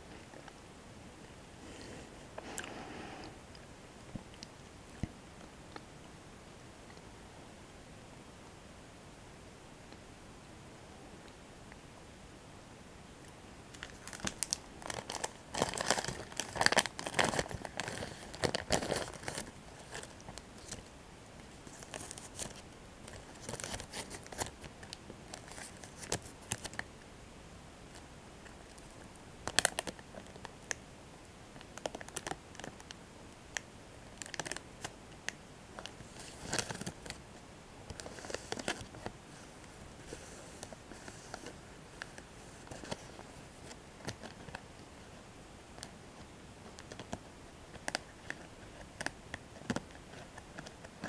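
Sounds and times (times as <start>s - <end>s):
wrapper crinkling and tearing: 13.7s - 20.8s, 21.7s - 26.8s, 34.2s - 34.9s, 35.8s - 37.2s.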